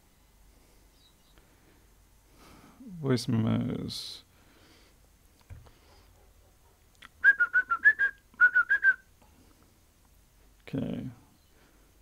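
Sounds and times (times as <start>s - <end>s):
person whistling short notes: 7.2s - 9.1s.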